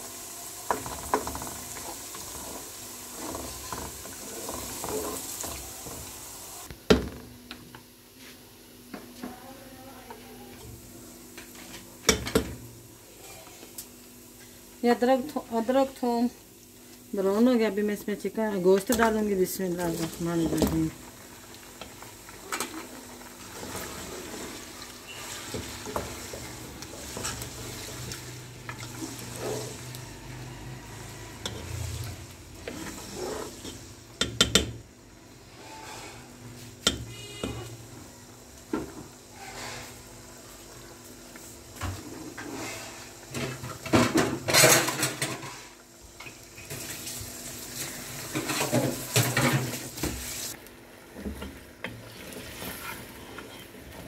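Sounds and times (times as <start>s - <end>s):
meat sizzling in hot fat: 0.0s - 6.7s, 10.6s - 54.0s
wooden spatula scraping a pot: 0.7s - 6.2s, 19.8s - 21.0s, 22.6s - 33.9s, 39.3s - 40.1s, 41.8s - 43.9s, 51.3s - 54.0s.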